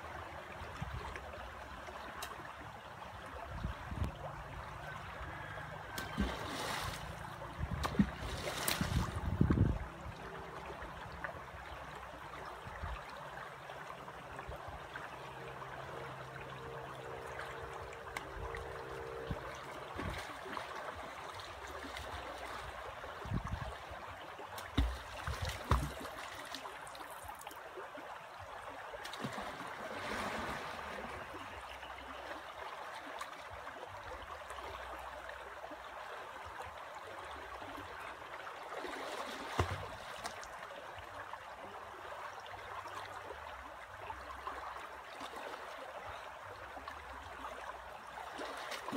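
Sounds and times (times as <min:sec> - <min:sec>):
river flowing over stones: 0:00.0 - 0:48.9
rocks knocking and splashing in water: 0:07.6 - 0:09.7, 0:24.6 - 0:26.3
faint steady hum: 0:09.1 - 0:23.9.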